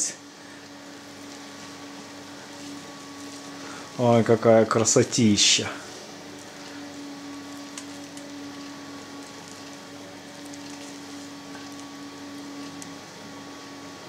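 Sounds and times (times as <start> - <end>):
electrical hum: 0.0 - 14.0.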